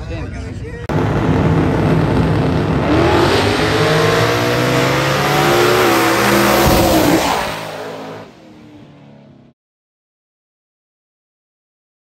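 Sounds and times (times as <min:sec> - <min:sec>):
race car engine at full throttle: 0:00.9 - 0:09.5.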